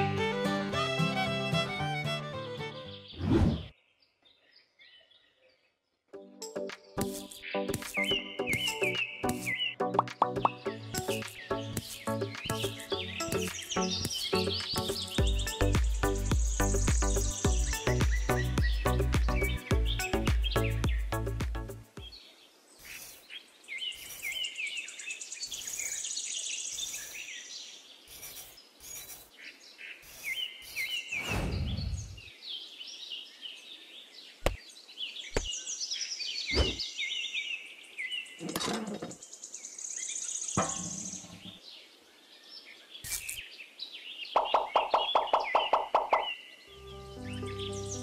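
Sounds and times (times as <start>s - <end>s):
small birds chirping: 2.6s - 48.0s
tiny trowel scraping sand: 7.0s - 8.7s, 11.1s - 12.2s, 22.8s - 24.5s, 26.7s - 27.3s, 28.0s - 29.4s, 30.0s - 31.2s, 43.0s - 43.5s.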